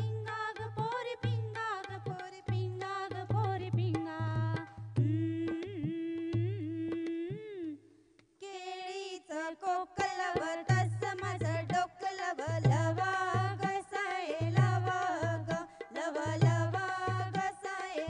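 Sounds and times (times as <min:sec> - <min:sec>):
folk singing: 0:08.4 - 0:18.0.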